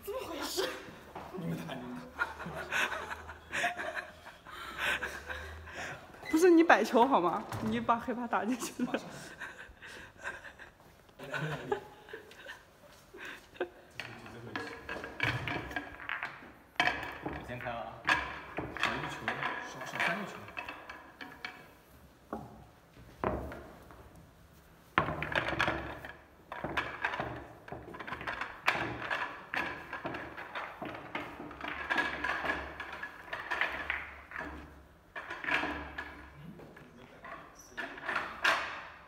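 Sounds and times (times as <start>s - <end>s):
billiard balls clacking: 13.3s - 39.0s.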